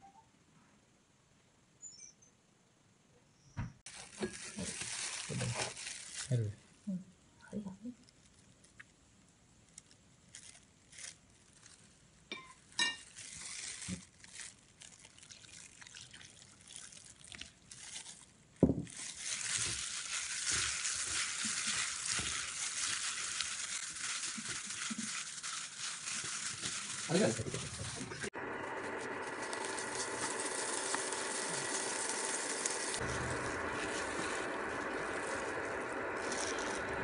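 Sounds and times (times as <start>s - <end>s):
gloved hand squeezing wet slices: 3.9s - 6.5s, 8.0s - 37.0s
water pouring: 13.6s - 18.2s, 29.2s - 37.0s.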